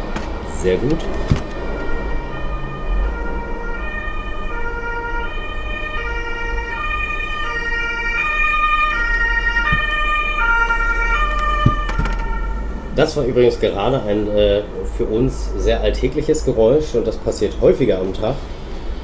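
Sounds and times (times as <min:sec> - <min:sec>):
two-tone police siren: 0:01.2 - 0:13.0
light knock: 0:11.6 - 0:12.2.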